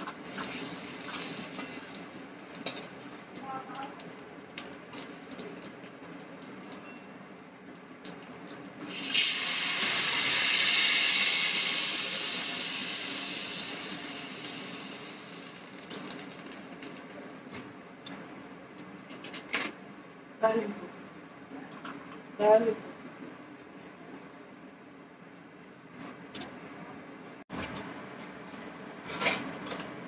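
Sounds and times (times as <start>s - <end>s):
liquid sizzling in hot oil: 0.0s - 7.0s, 8.0s - 17.2s.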